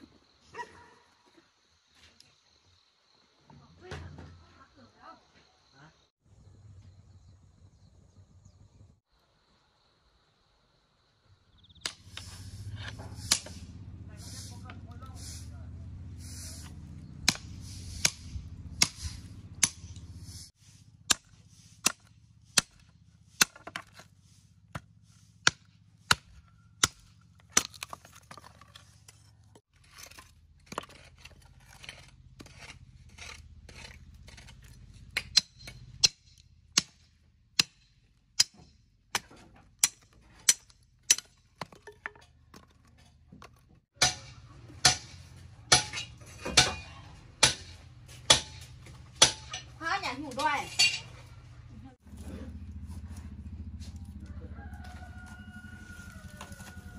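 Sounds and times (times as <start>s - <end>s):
machete chopping wood: 11.8s - 13.7s, 17.2s - 20.0s, 21.1s - 24.1s, 24.7s - 28.4s, 35.1s - 41.8s, 44.0s - 49.7s.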